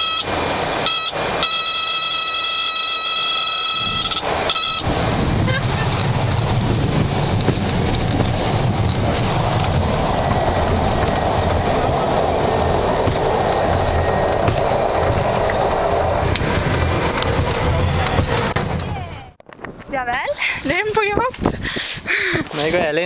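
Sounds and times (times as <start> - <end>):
propeller plane engine drone: 0.0 - 19.4
low rumble: 4.0 - 19.9.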